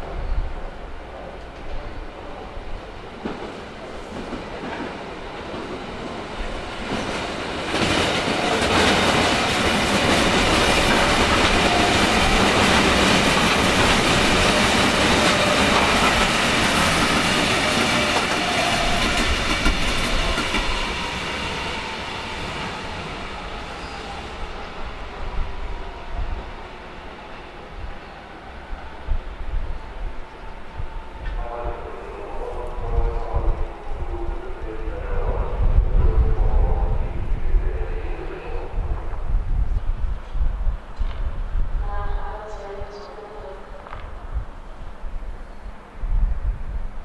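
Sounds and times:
electric train wheels on rails: 0:03.0 - 0:46.0.

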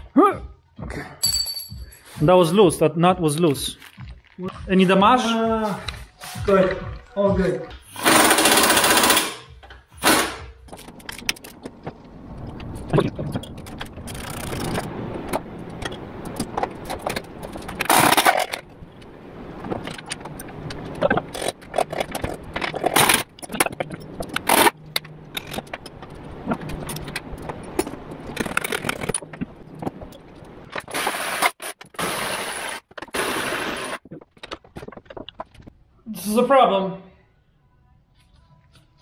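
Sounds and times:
metal parts clinking and clanking: 0:13.3 - 0:18.7, 0:19.8 - 0:29.4.

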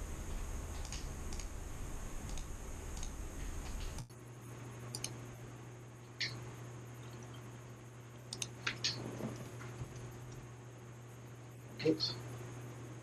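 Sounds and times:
low room hum: 0:00.0 - 0:13.0
mouse and keyboard clicks: 0:04.9 - 0:05.2, 0:08.3 - 0:09.0.

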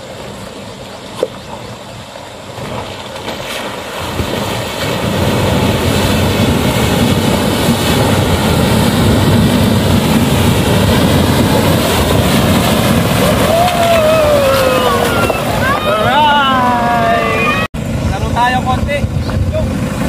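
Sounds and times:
water splashing around tyres: 0:00.0 - 0:16.0.

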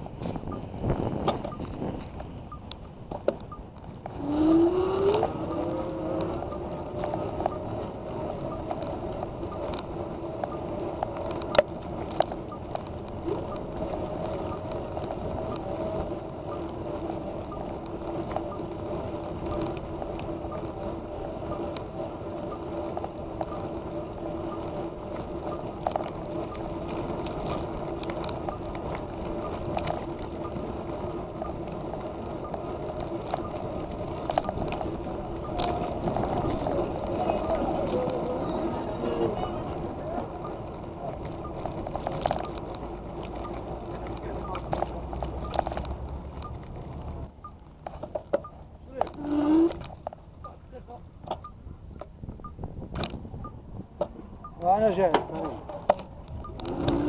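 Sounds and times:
wind: 0:00.0 - 0:57.0
electric bicycle motor whining: 0:56.4 - 0:57.0.

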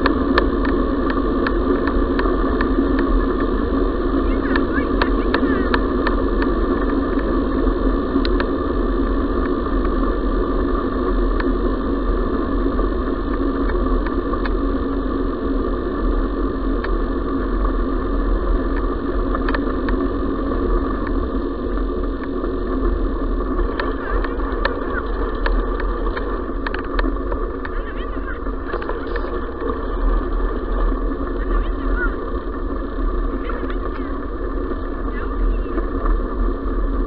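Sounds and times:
grit ticks: 0:21.0 - 0:36.2
tyres rolling over gravel: 0:22.8 - 0:36.4.

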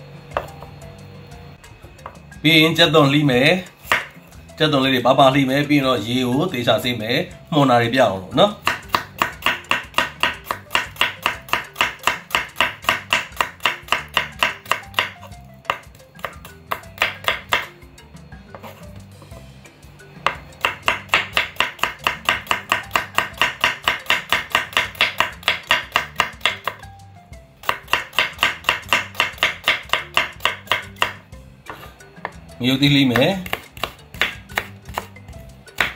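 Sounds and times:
knife chopping on wooden board: 0:00.3 - 0:00.7, 0:01.9 - 0:02.2, 0:03.8 - 0:04.2, 0:08.6 - 0:17.8, 0:18.5 - 0:19.5, 0:20.2 - 0:26.9, 0:27.6 - 0:32.4, 0:33.1 - 0:35.9.

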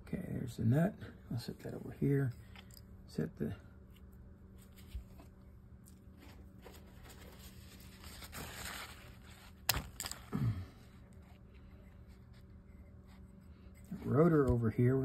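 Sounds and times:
paper towel rustling: 0:06.0 - 0:10.2.

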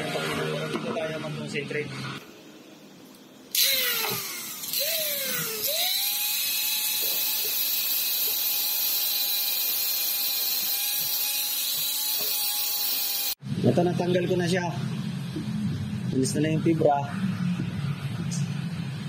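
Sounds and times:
angle grinder whining: 0:03.5 - 0:13.4.

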